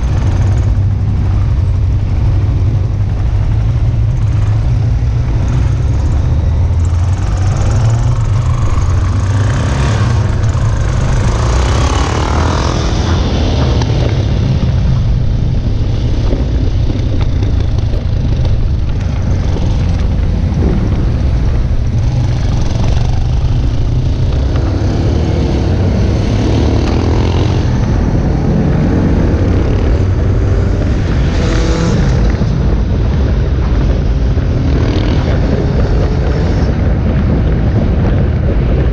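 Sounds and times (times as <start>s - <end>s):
motorcycles riding past: 0.0s - 14.8s.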